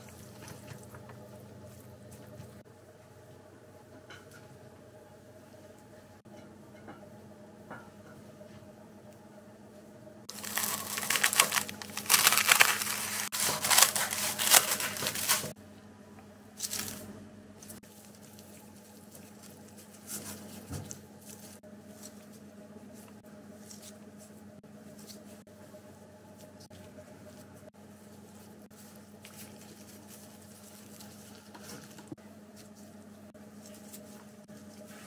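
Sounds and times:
crinkling and rustling: 10.3 - 15.6, 28.2 - 33.0.

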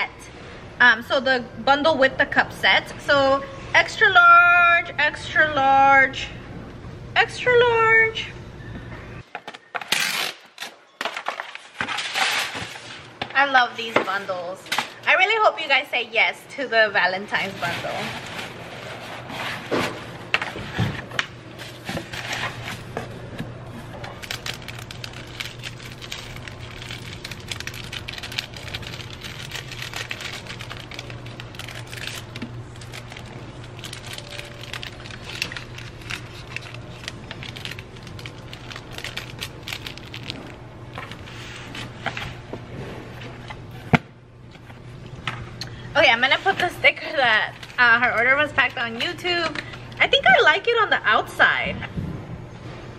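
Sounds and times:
steady low hum: 0.0 - 9.3, 12.0 - 52.9
plastic packaging crinkling: 23.8 - 42.4, 46.4 - 50.4.

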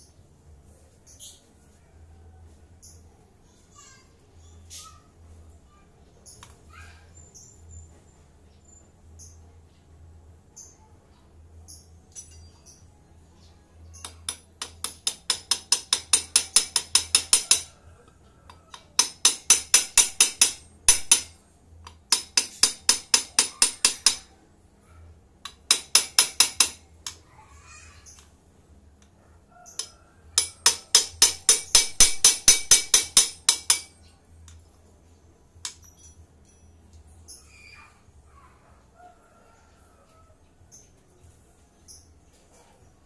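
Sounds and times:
ratchet wrench clicking: 14.0 - 17.7, 18.8 - 21.3, 21.9 - 24.3, 25.5 - 27.2, 29.7 - 33.9.

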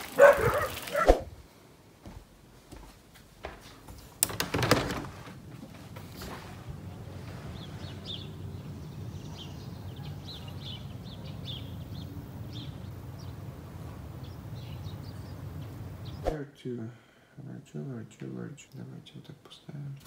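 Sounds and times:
songbirds chirping: 0.0 - 16.8
low outdoor rumble: 5.1 - 16.2.

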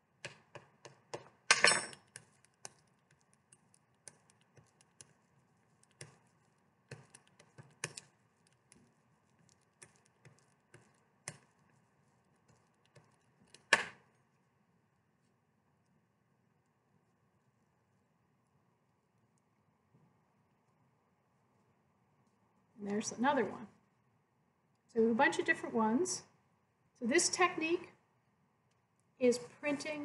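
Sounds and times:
spoon clicking and tapping on paper: 0.2 - 13.9.

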